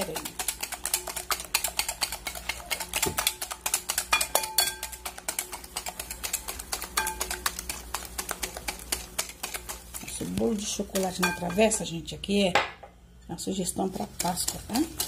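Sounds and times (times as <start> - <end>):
hand whisk clicking in glass bowl: 0.0 - 11.7, 13.9 - 15.0.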